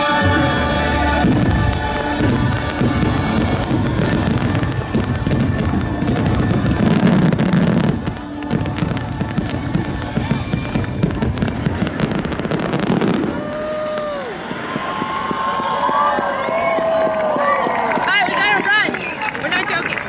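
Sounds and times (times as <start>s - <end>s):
orchestral music: 0.0s - 13.3s
fireworks bursts and crackle: 0.0s - 20.0s.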